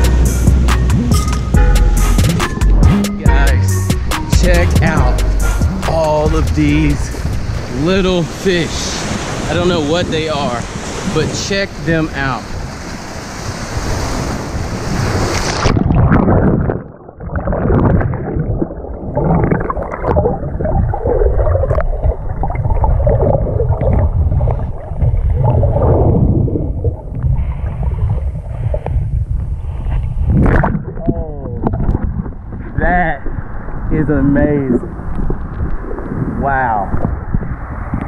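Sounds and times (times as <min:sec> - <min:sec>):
wind on microphone: 0:00.0 - 0:38.0
surf washing: 0:05.8 - 0:29.0
underwater sloshing: 0:12.5 - 0:33.9.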